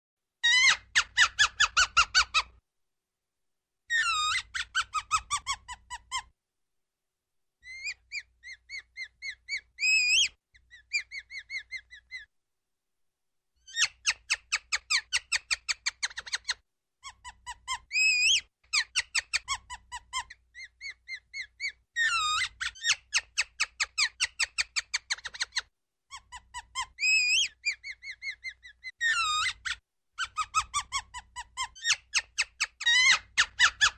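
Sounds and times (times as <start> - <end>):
ground squirrel alarm chirps: 7.6 - 12.2.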